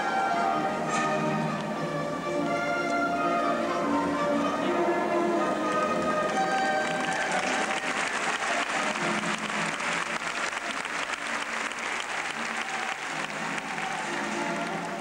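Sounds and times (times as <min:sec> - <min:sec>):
faint background music: 0:00.0 - 0:15.0
audience applauding: 0:06.0 - 0:15.0.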